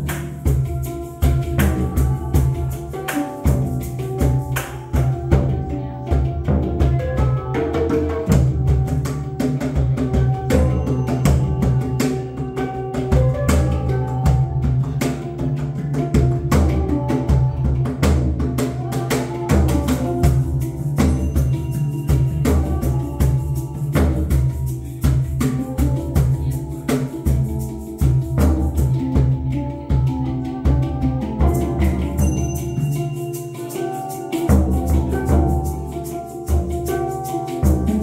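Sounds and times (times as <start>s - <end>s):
shaken rattle: 0.0s - 5.4s, 18.7s - 29.3s, 31.2s - 38.0s
cajon and hand drum strikes: 0.0s - 38.0s
handpan ringing notes: 0.0s - 38.0s.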